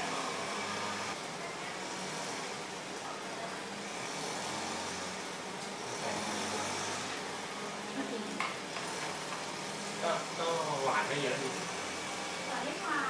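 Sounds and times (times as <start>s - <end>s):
faint voices talking: 0.0s - 8.7s
grass cutter running: 3.9s - 5.2s, 5.8s - 7.3s, 10.7s - 13.0s.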